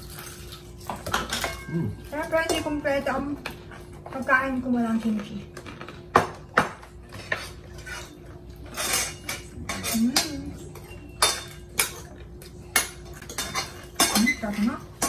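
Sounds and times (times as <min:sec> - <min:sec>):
cutlery clinking on plates: 0:00.9 - 0:02.7, 0:05.6 - 0:15.0.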